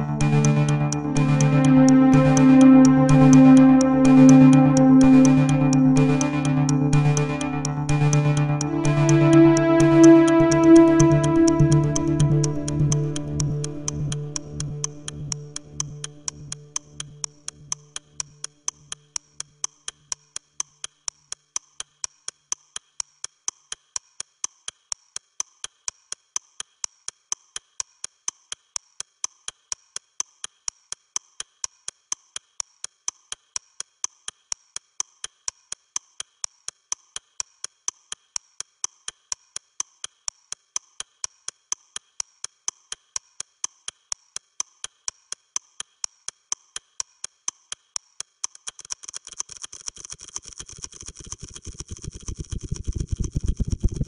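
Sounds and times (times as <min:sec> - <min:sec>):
low background music: 0:00.0 - 0:19.0
clock ticking: 0:00.0 - 0:54.0.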